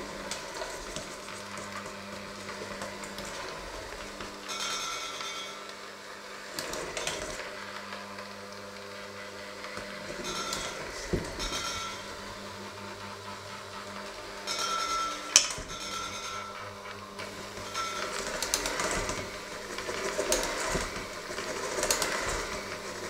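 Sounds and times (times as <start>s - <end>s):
electric mixer motor hum: 0.0s - 23.0s
beater clinking on bowl: 4.4s - 5.7s, 10.2s - 12.2s, 14.4s - 17.0s, 17.6s - 20.8s
beaters scraping a metal bowl: 9.7s - 23.0s.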